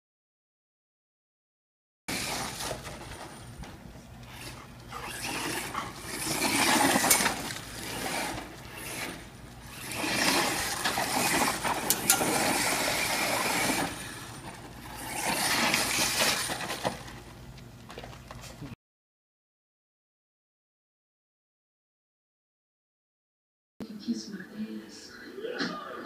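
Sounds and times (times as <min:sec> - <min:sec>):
rc truck motor whining: 0:02.1 - 0:03.6, 0:04.2 - 0:17.4.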